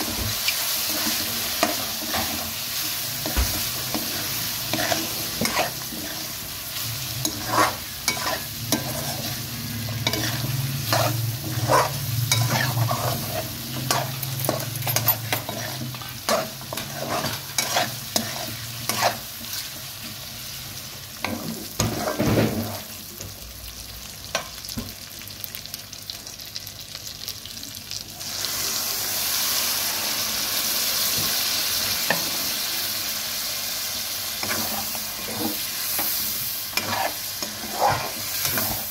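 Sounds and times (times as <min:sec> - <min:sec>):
chicken sizzling in oil: 0:00.0 - 0:38.9
metal spoon scraping a pot: 0:07.2 - 0:09.4, 0:10.0 - 0:19.2.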